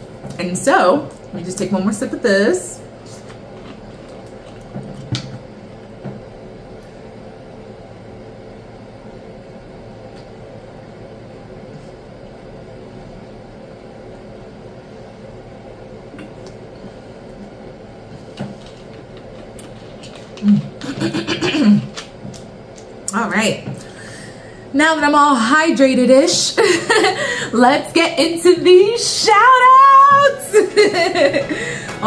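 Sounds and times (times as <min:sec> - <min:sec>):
room noise hum: 0:00.0 - 0:32.0.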